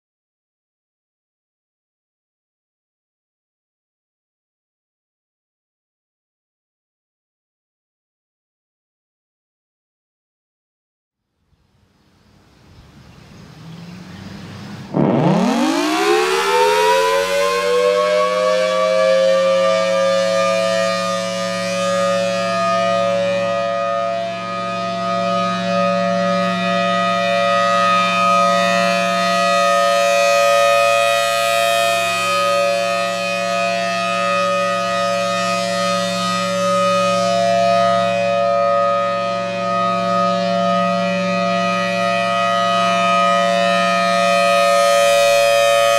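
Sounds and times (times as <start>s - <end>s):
warning siren: 12.1s - 45.9s.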